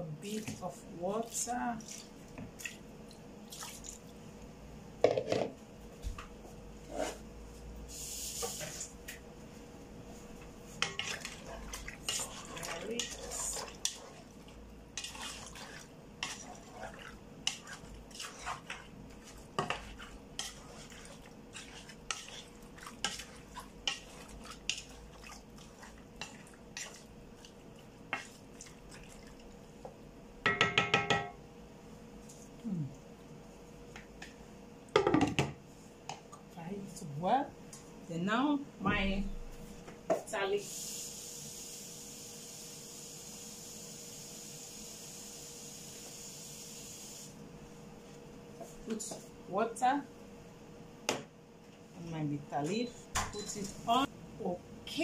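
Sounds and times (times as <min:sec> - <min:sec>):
faint steady hum: 0:00.0 - 0:55.0
wooden spoon stirring meat in pot: 0:10.4 - 0:30.0
knocks and clinks of cookware: 0:30.4 - 0:31.4.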